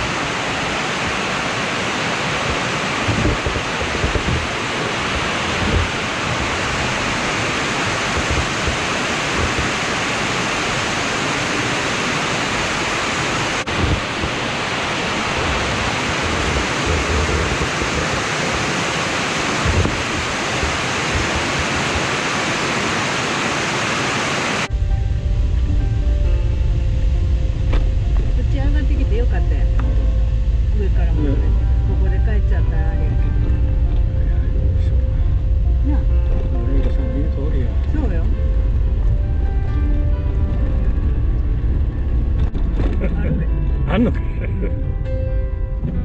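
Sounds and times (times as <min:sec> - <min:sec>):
waterfall rushing: 0:00.0 - 0:28.6
wind bumps on microphone: 0:00.8 - 0:11.0, 0:13.5 - 0:23.0.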